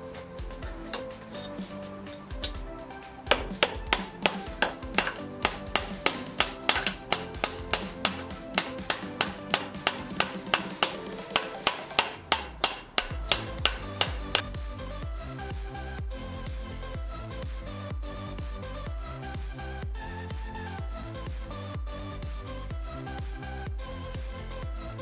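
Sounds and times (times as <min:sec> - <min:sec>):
background music: 0:00.0 - 0:25.0
hammer striking metal: 0:03.3 - 0:14.5.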